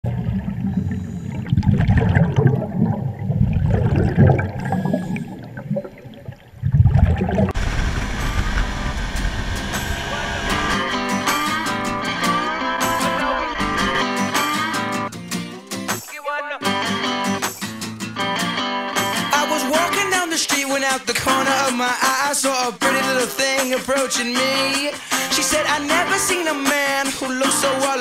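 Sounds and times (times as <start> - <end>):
underwater rushing and bubbling water: 0.0 - 10.4
blues-rock guitar music: 7.6 - 28.0.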